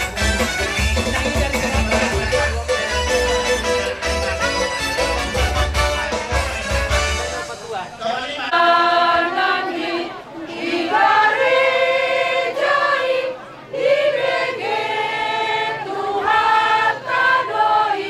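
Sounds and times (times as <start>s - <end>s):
women singing in chorus: 8.5s - 18.0s.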